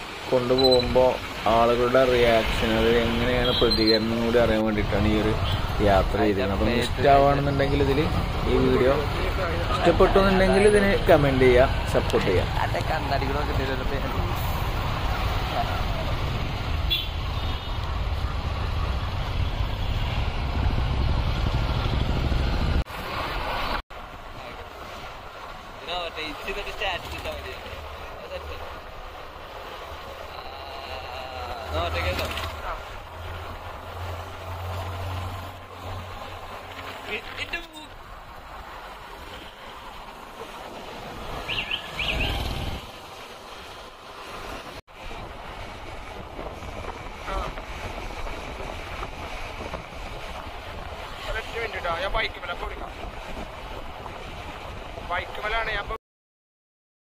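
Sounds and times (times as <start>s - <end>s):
wind rumble: 11.6s - 25.8s, 38.0s - 55.4s
bird chirps: 41.5s - 42.5s.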